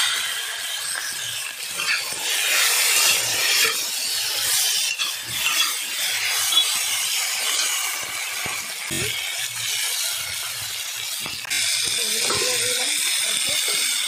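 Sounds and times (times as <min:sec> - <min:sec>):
food sizzling in hot oil: 0:00.0 - 0:14.0
metal spatula scraping wok: 0:00.0 - 0:14.0.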